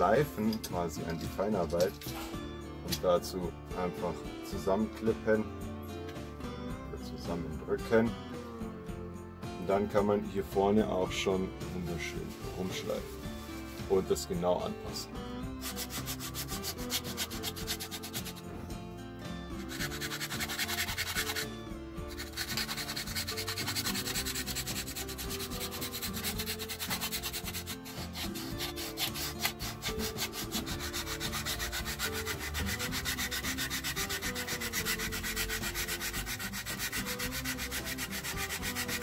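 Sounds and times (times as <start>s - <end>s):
sandpaper rasping on wood: 15.6s - 18.5s, 19.6s - 21.5s, 22.1s - 39.0s.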